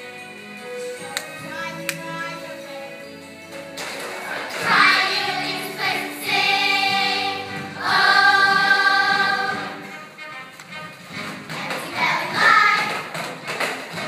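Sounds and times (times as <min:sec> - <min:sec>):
choir singing: 0:04.2 - 0:09.8, 0:11.8 - 0:12.9.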